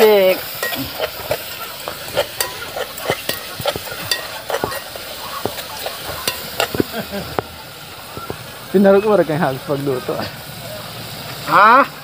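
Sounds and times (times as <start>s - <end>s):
food sizzling in a pot: 0.0s - 12.0s
spoon scraping a pot: 0.4s - 7.4s.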